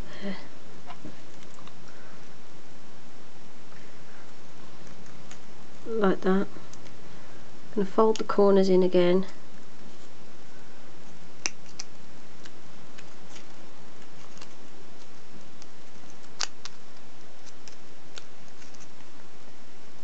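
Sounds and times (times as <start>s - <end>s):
steady hiss: 0.0s - 20.0s
foil wrapper crinkling: 11.5s - 19.0s.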